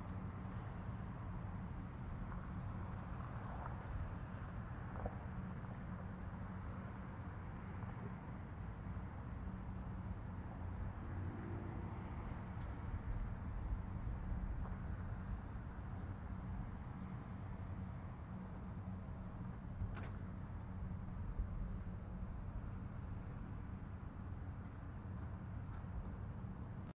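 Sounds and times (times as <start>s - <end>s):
insect chirping: 8.5s - 26.8s.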